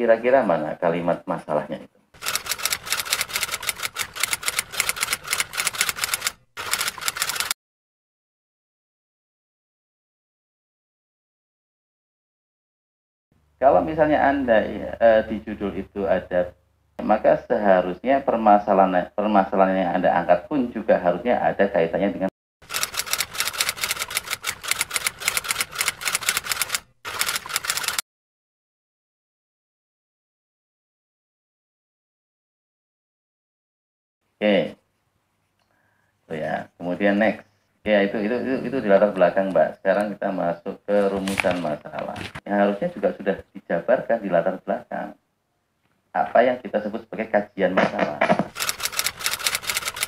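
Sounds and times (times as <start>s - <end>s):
rapid typing key clicks: 2.2s - 7.6s, 22.6s - 28.0s, 48.5s - 50.0s.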